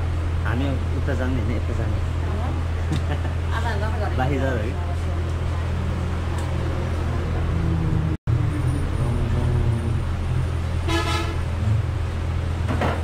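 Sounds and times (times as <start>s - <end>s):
low traffic rumble: 0.0s - 13.0s
vehicle horn toot: 10.8s - 11.5s.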